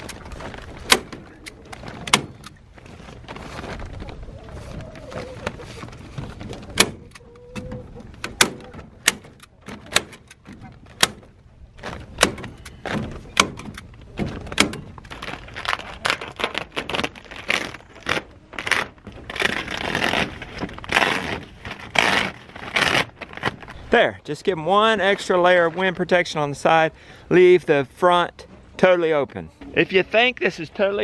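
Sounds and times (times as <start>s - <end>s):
plastic sheeting crinkling: 0.0s - 6.8s, 14.0s - 24.0s.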